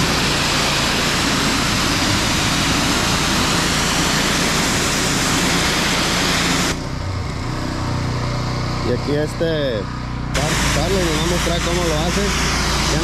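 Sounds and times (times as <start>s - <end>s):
pressure washer spray hissing: 0.0s - 6.8s, 10.4s - 13.0s
pressure washer engine: 0.0s - 13.0s.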